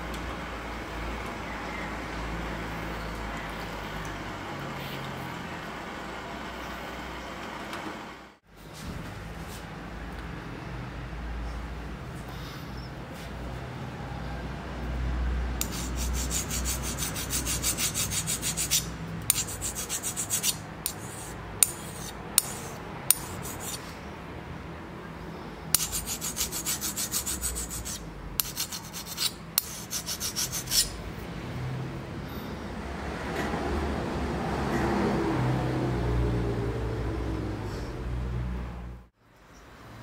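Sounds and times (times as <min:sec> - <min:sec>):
file rasping on steel blade: 0:15.6 - 0:24.0, 0:25.7 - 0:31.0.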